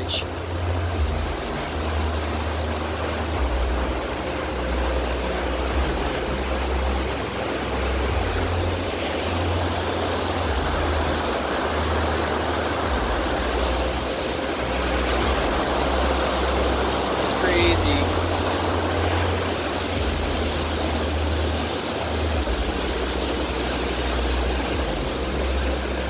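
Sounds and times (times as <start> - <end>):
low rumble: 0.0 - 26.0
whitewater river rushing: 0.0 - 26.0.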